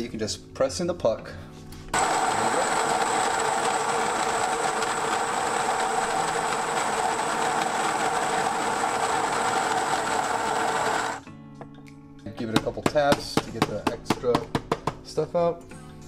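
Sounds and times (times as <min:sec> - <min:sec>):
coffee grinder whirring: 0:02.0 - 0:11.2.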